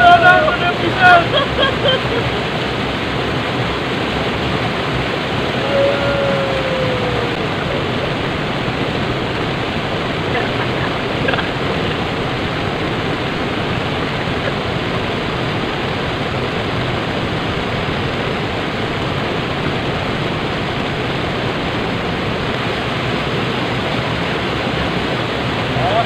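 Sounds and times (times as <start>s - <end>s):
river water rushing: 0.0s - 26.0s.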